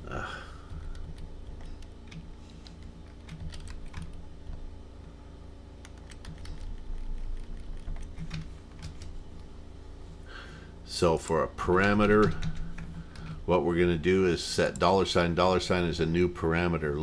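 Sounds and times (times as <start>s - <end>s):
low steady hum: 0.0s - 17.0s
computer keyboard typing: 0.6s - 4.7s, 5.8s - 9.2s, 11.8s - 13.4s.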